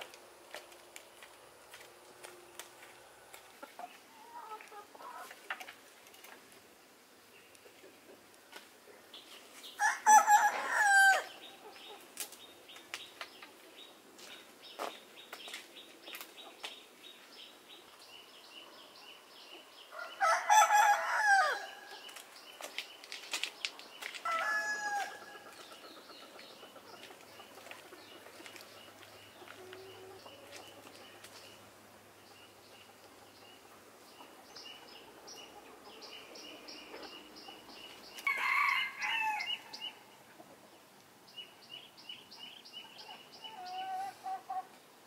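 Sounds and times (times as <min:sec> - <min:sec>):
rooster crowing: 0:09.8 - 0:11.4, 0:19.9 - 0:21.8, 0:24.2 - 0:25.3, 0:38.2 - 0:39.7.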